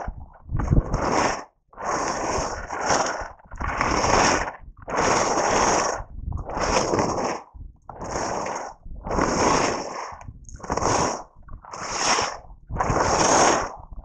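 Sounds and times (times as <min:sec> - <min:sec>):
wind rumbling on microphone: 0:00.0 - 0:14.0
skis scraping on snow: 0:08.0 - 0:13.7.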